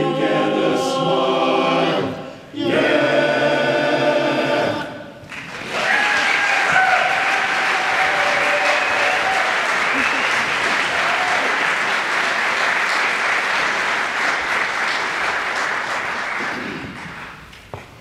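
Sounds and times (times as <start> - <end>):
male chorus singing chord: 0.0 - 5.2
audience applauding: 5.2 - 17.5.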